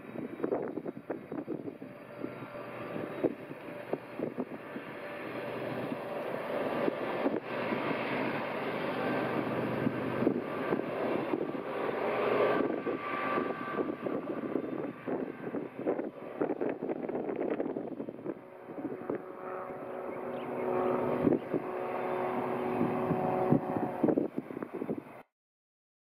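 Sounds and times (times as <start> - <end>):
faint whine: 0.0 - 25.2
locomotive engine drone: 0.0 - 25.2.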